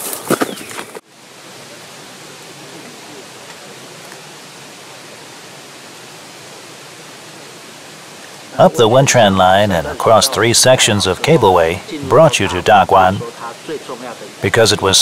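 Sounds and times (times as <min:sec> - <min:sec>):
steady rushing noise: 0:04.8 - 0:15.0.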